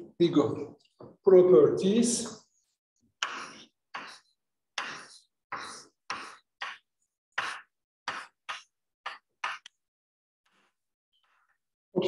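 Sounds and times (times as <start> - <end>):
chalk scraping on chalkboard: 3.2 - 9.7.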